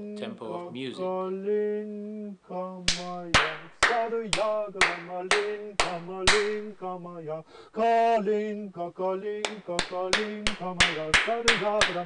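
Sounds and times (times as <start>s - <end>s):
hand claps: 2.9s - 6.8s, 9.4s - 12.0s.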